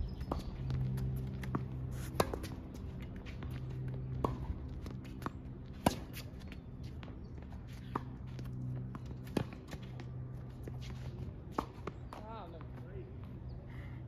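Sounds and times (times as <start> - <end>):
footsteps on court: 0.1 - 13.4
ball bouncing: 0.2 - 7.1
racket hitting tennis ball: 0.3 - 6.6, 7.8 - 12.3.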